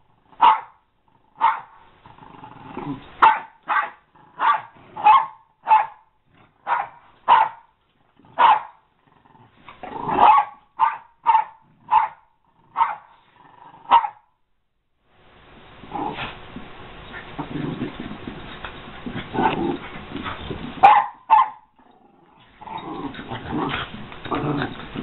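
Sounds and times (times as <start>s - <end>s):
dogs barking: 0.4s - 0.8s, 1.4s - 1.8s, 3.2s - 7.7s, 8.4s - 8.8s, 10.2s - 13.1s, 13.9s - 14.2s, 19.4s - 21.7s
dog growling: 1.0s - 3.2s, 3.9s - 5.0s, 8.0s - 10.4s, 11.6s - 14.0s, 15.8s - 16.4s, 17.1s - 20.9s, 21.7s - 25.0s.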